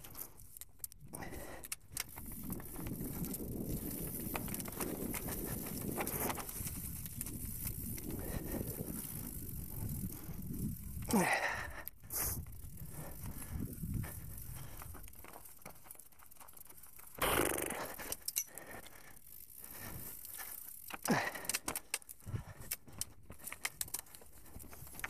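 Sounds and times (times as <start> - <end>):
bike rattling over bumps: 0.0 - 25.0
bike tyres rolling over leaves: 1.4 - 25.0.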